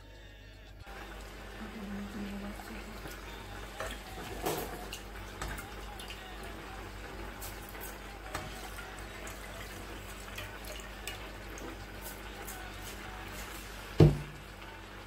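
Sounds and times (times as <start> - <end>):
water dripping and trickling: 1.2 - 14.4
loud knock: 14.0 - 14.3.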